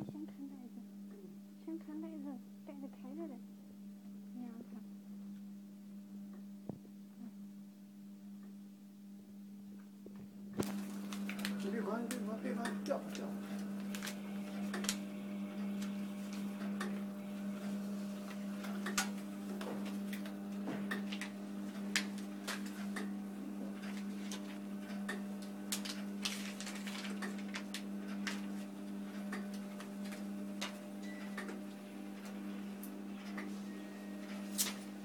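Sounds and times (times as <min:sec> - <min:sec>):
electric motor hum: 0:10.4 - 0:35.0
plastic pouches crinkling: 0:10.6 - 0:15.0, 0:25.7 - 0:28.6.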